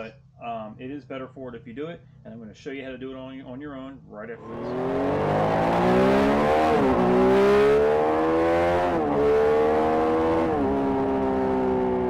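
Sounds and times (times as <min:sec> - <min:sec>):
motorcycle engine accelerating: 0:04.4 - 0:12.0.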